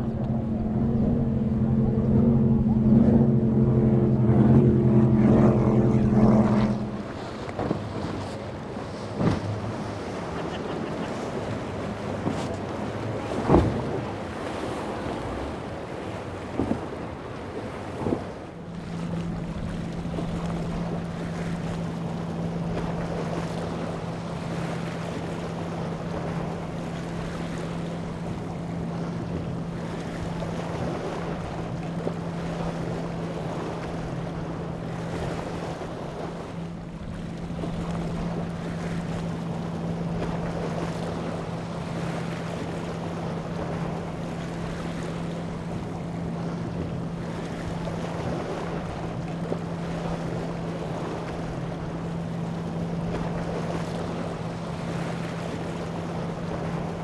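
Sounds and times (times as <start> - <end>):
wind on microphone: 0.0 - 8.4
outboard engine drone: 0.0 - 57.0
water wash rushing: 0.0 - 57.0.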